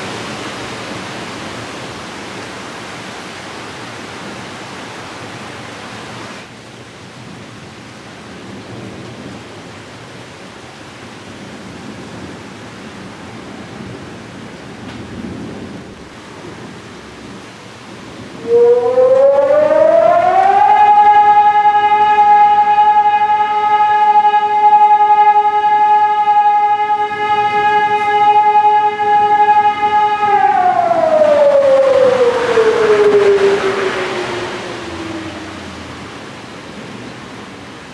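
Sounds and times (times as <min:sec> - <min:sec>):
warning siren wailing: 0:18.4 - 0:37.3
heavy rain hissing: 0:30.2 - 0:37.9.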